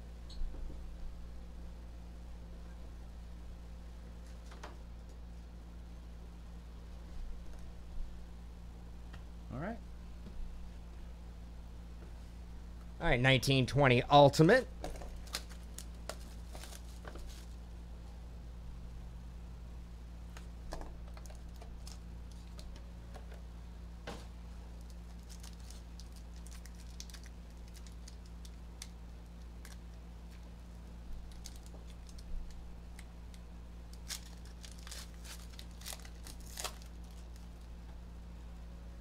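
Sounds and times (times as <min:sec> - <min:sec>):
foil pack crinkling: 0:14.9 - 0:17.6, 0:21.0 - 0:22.7, 0:24.8 - 0:37.7.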